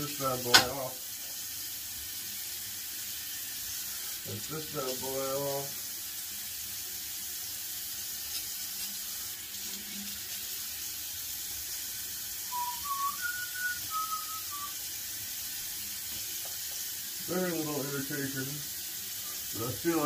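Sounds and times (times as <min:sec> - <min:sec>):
tap water running into sink: 0:00.0 - 0:20.0
person whistling a tune: 0:12.4 - 0:14.8.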